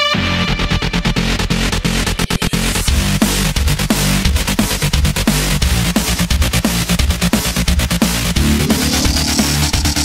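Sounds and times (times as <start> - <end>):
electronic dance music: 8.3 - 10.0.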